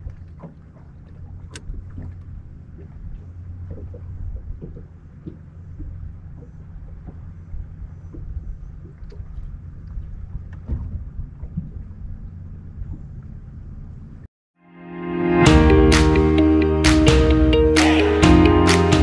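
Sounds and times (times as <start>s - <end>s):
boat engine rumbling: 0.0s - 14.3s.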